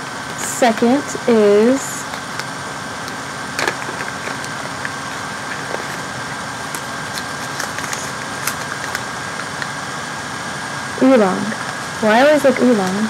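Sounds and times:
paper sachets crinkling: 2.1s - 9.8s.

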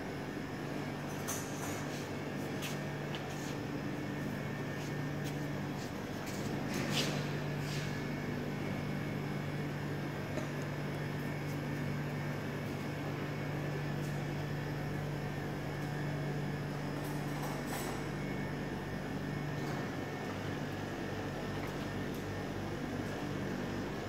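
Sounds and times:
machinery hum: 0.0s - 24.0s.

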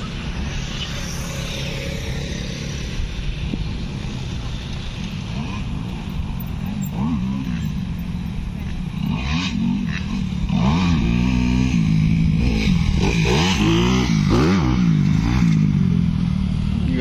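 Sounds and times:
dirt bike engine revving: 6.8s - 7.9s, 9.0s - 16.0s.

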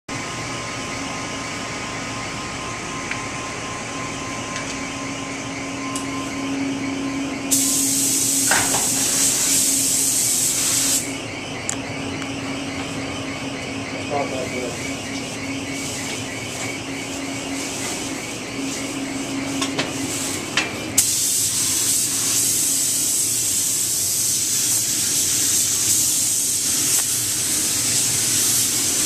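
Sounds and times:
ventilation hum: 0.1s - 29.0s
paint spray gun hissing: 7.5s - 11.1s, 21.0s - 29.0s.

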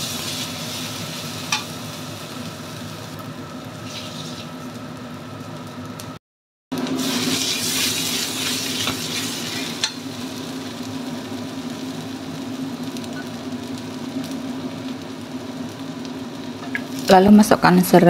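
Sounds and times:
paste sizzling in hot oil: 0.0s - 3.2s, 3.8s - 4.7s, 6.8s - 15.5s.

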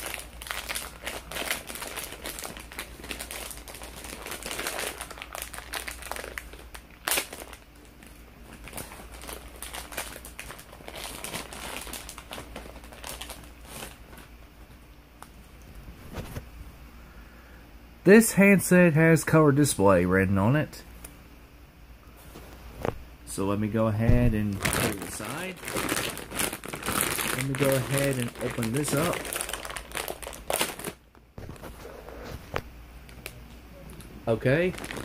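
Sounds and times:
plastic packaging crinkling: 0.0s - 14.4s, 24.1s - 33.4s, 34.3s - 35.0s.

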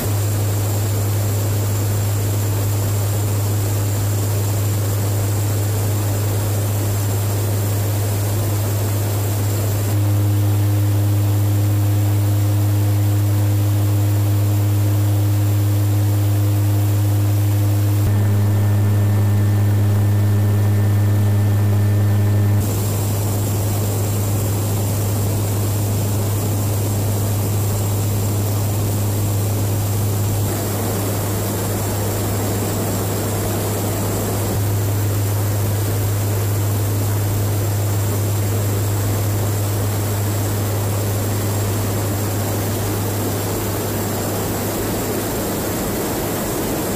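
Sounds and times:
deep propeller hum: 0.0s - 46.9s
engine and airflow hiss: 22.5s - 46.9s.

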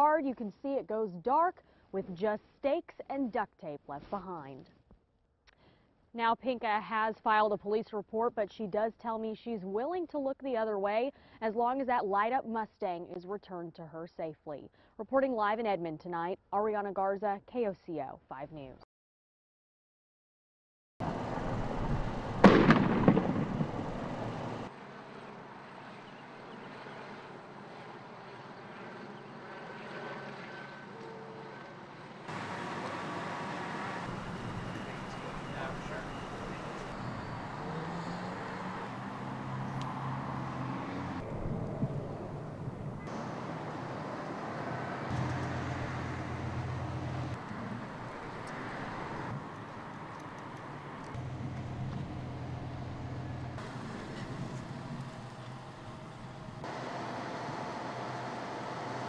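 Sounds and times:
low engine or pump hum: 21.0s - 59.0s
outdoor ambience: 21.0s - 59.0s
loud explosion blast: 22.4s - 24.5s.

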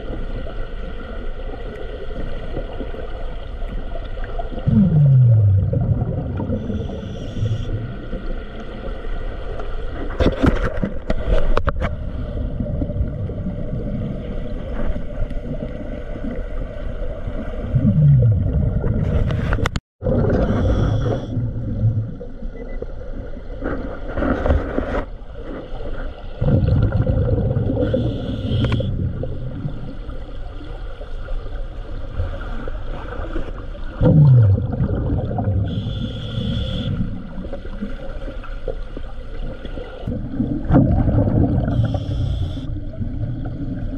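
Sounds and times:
exhaled bubbles gurgling: 0.0s - 9.5s, 11.3s - 23.6s, 25.8s - 43.9s
steady underwater hum: 0.0s - 43.9s
diver breathing through regulator: 6.5s - 7.9s, 20.3s - 21.4s, 27.7s - 29.2s, 35.6s - 37.2s, 41.6s - 42.9s.

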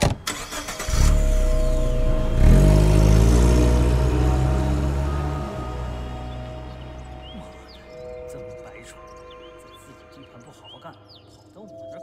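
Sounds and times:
car engine revving: 0.3s - 8.0s.

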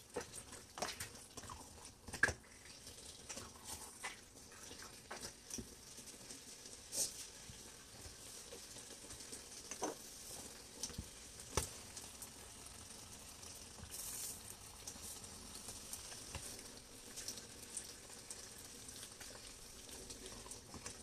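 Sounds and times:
stew sizzling with pops: 0.0s - 21.0s.

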